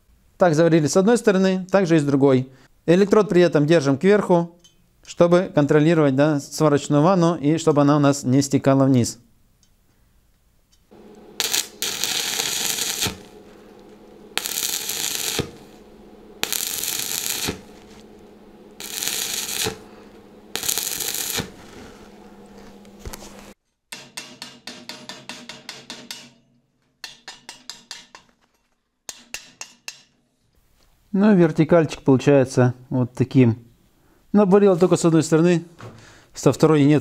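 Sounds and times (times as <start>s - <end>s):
crackling welding arc: 10.9s - 23.6s
low hum: 10.9s - 23.6s.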